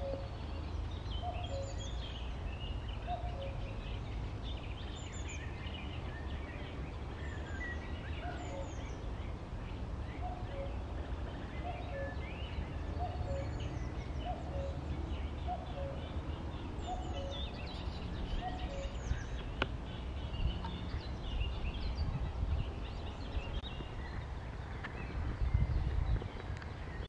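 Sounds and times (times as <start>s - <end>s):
cuckoo calling: 0.0s - 0.4s, 1.2s - 1.9s, 3.0s - 3.8s, 8.1s - 8.9s, 10.2s - 10.8s, 11.5s - 14.8s, 15.4s - 16.2s, 16.8s - 17.7s, 18.3s - 19.6s
songbirds chirping: 0.0s - 27.0s.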